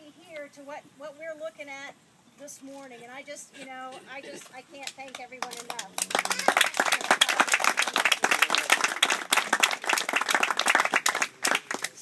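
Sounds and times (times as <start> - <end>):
people applauding: 5.1 - 12.0.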